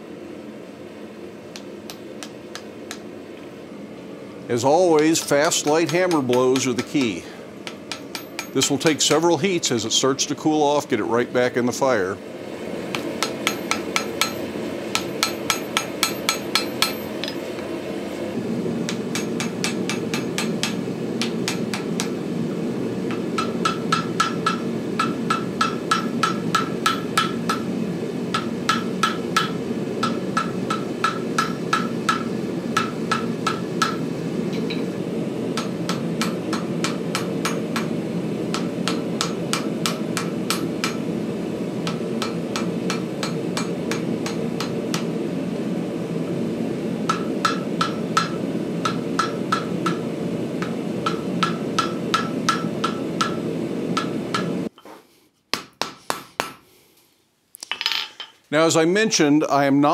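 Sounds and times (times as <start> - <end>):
forge running: 0.6 - 54.7
hammer striking anvil: 4.9 - 9.3, 12.9 - 17.4, 18.9 - 22.2, 23.1 - 27.7, 28.3 - 34.9, 35.6 - 37.9, 38.5 - 41.1, 41.8 - 45.1, 47.1 - 50.0, 50.6 - 54.6
anvil ringing: 5.1 - 9.2.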